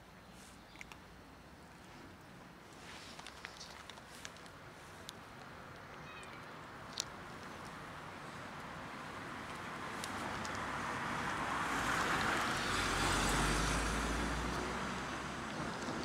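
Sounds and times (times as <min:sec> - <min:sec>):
car passing by: 0:08.3 - 0:16.0.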